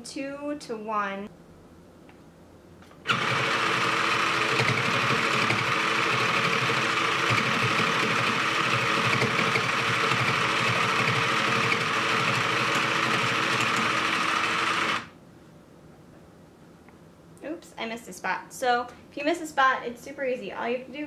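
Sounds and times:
felting machine rapid mechanical buzz: 3.0s - 15.1s.

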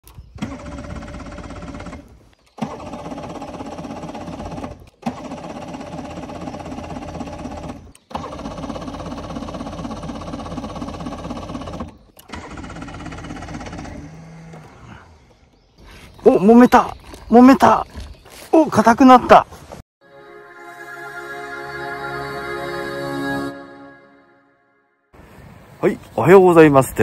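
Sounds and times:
outboard motor idling: 0.2s - 18.1s.

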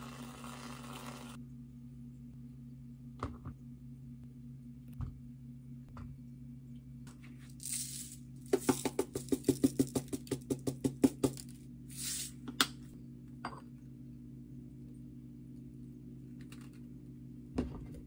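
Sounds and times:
sprinkles rattling in shaker: 7.5s - 10.6s.

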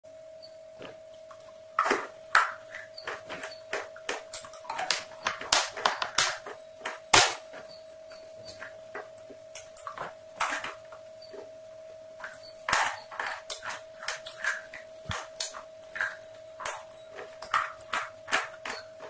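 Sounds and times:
faint steady hum: 0.1s - 19.0s
brittle stick crunching when chewed: 12.2s - 19.0s.

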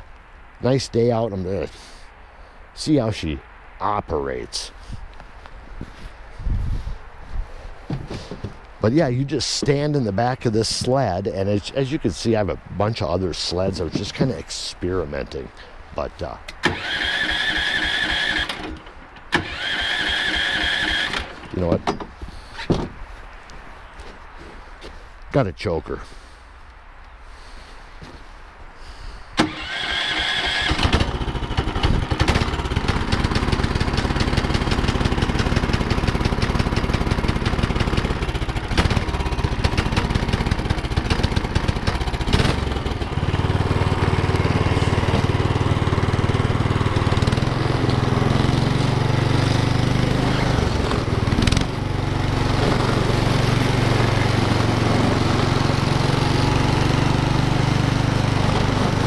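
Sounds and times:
small gas engine running: 16.6s - 21.5s, 29.4s - 59.0s.

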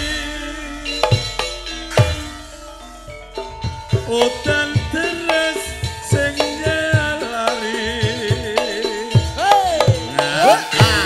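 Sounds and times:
ringing gong-chime notes: 0.0s - 5.2s
gamelan music: 0.0s - 11.0s.

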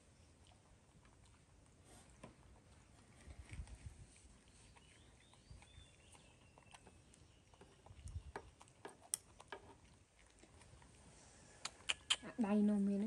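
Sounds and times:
faint high chirp: 4.5s - 8.2s.

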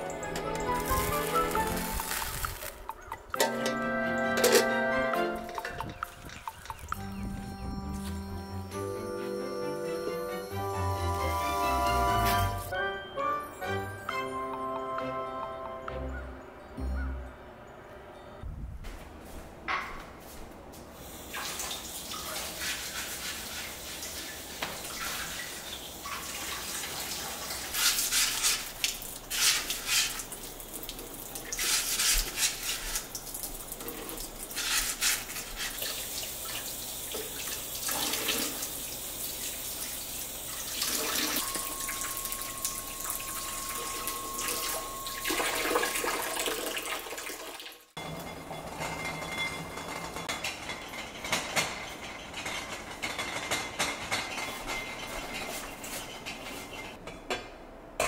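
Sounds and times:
sponge scrubbing eggs: 22.2s - 25.8s, 26.4s - 30.5s, 31.5s - 33.2s, 33.9s - 36.3s.

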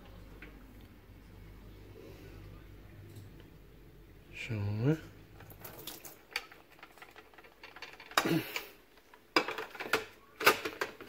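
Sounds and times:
plastic clatter: 5.4s - 11.0s
clicks and knocks of hard plastic: 5.5s - 11.0s.

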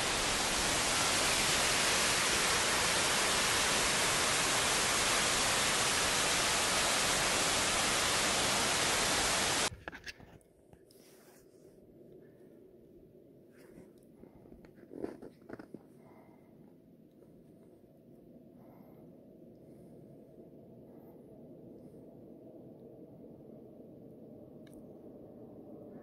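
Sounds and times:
waterfall roaring: 0.0s - 9.7s.

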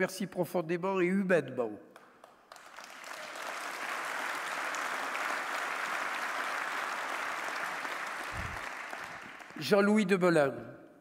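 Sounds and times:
crowd applauding: 2.0s - 9.7s.

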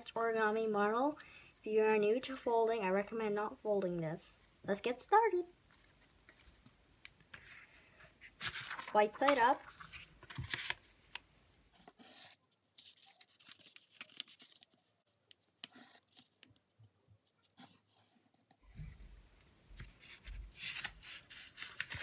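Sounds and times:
light paper crinkles and taps: 5.6s - 7.6s, 8.2s - 11.2s, 12.8s - 17.8s, 19.7s - 22.0s
paper rustling and folding: 5.6s - 11.2s, 11.8s - 18.4s, 19.7s - 22.0s.

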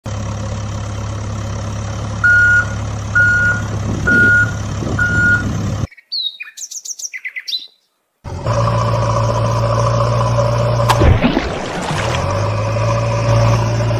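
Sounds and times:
heavy vehicle engine drone: 0.0s - 5.9s, 8.3s - 13.9s
reversing alarm beeping: 2.2s - 5.5s
birds chirping: 5.9s - 8.0s.

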